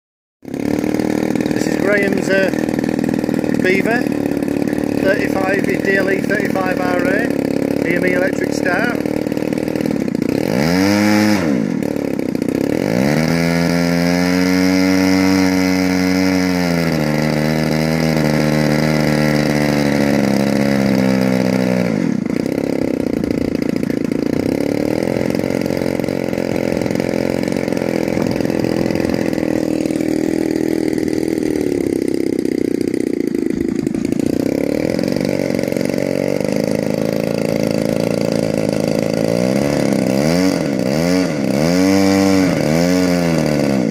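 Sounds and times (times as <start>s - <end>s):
model plane engine revving: 0.4s - 43.9s.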